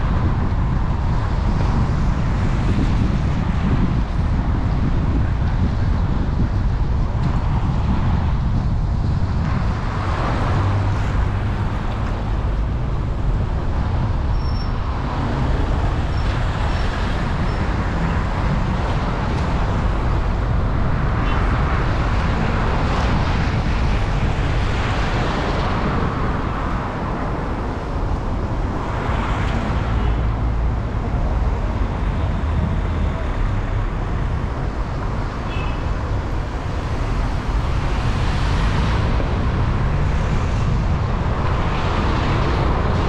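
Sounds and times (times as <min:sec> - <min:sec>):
engine and road rumble: 0:00.0 - 0:43.0.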